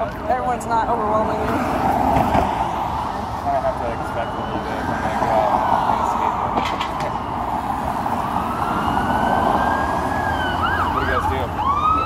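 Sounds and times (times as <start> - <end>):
street traffic noise: 0.0 - 12.0
emergency siren wailing: 0.4 - 12.0.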